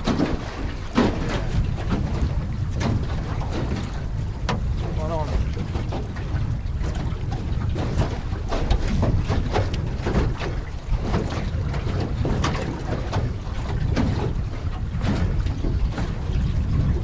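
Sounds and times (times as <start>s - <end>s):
low rumble: 0.0s - 10.1s
waves slapping against hull: 0.0s - 17.0s
wind buffeting microphone: 0.0s - 17.0s.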